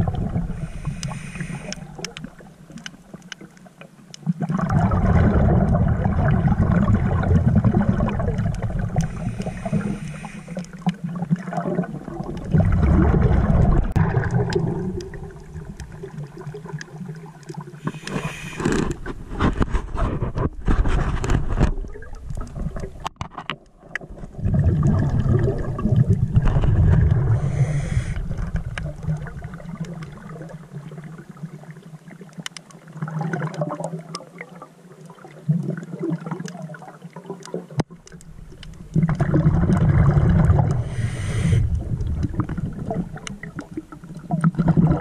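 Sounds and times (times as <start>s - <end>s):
underwater exhalation bubbling: 0.0s - 2.9s, 4.2s - 19.4s, 24.0s - 31.3s, 33.0s - 34.6s, 38.4s - 45.0s
regulator inhalation hiss: 0.5s - 2.0s, 9.0s - 10.8s, 17.8s - 18.8s, 27.4s - 28.2s, 40.8s - 41.7s.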